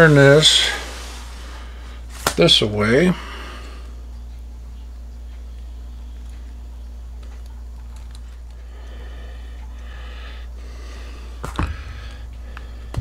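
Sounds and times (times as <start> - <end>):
soft hissy rustle: 0.0 - 3.8
steady low hum: 0.0 - 13.0.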